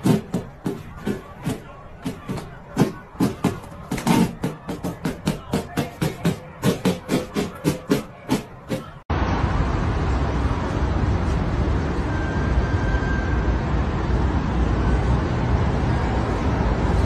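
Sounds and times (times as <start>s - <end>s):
music with regular beat: 0.0s - 9.0s
loud steady rumbling noise: 0.0s - 17.0s.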